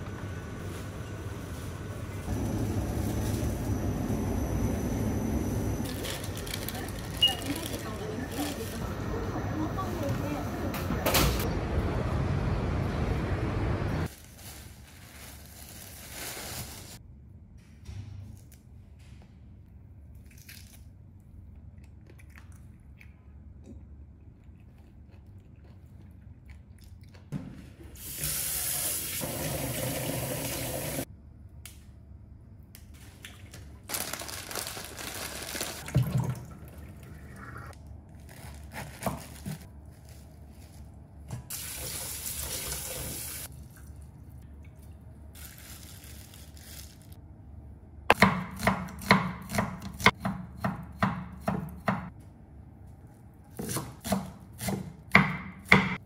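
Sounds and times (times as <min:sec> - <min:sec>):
kitchen tap running: 0:28.0 - 0:31.0, 0:41.5 - 0:43.5
knife chopping on cutting board: 0:48.1 - 0:52.1, 0:53.6 - 0:56.0.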